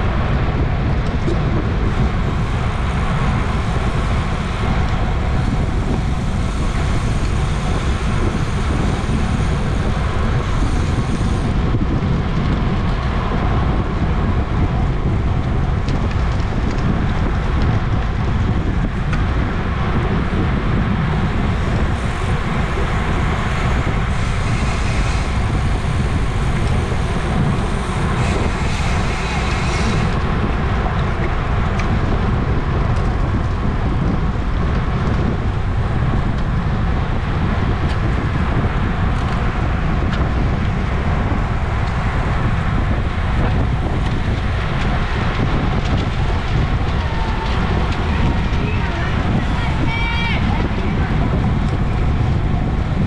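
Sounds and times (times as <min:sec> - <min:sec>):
wind rushing over microphone: 0:00.0 - 0:53.0.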